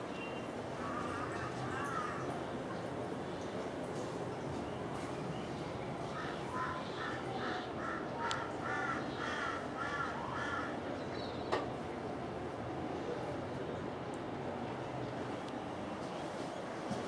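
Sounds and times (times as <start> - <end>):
crow cawing: 6.2 - 10.8.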